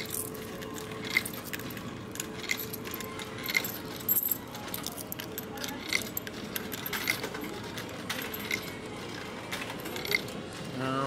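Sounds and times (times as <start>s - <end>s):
coins clinking into coin slot: 0.0s - 10.8s.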